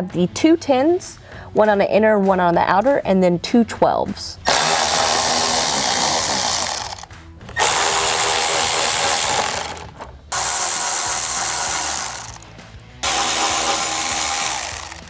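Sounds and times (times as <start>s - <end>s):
cordless drill spinning: 4.5s - 15.0s.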